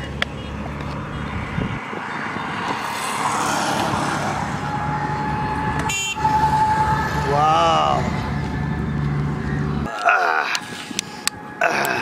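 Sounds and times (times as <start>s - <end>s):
vehicle passing: 0.0s - 10.0s
vehicle engine rumbling: 0.0s - 12.0s.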